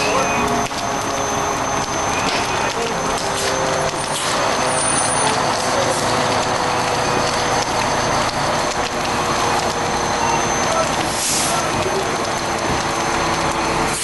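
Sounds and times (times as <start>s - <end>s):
crackles: 0.0s - 14.0s
fire truck engine running: 0.0s - 14.0s.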